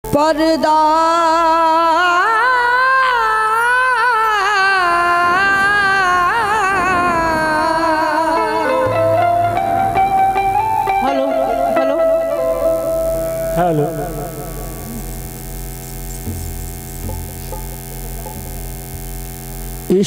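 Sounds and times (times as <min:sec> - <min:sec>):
man singing long held notes: 0:00.0 - 0:10.2, 0:10.8 - 0:15.3.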